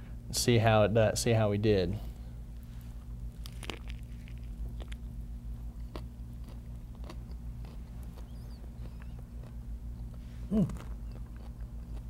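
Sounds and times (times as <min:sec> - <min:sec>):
steady low hum: 0:00.0 - 0:12.0
person chewing crunchy food: 0:02.6 - 0:12.0.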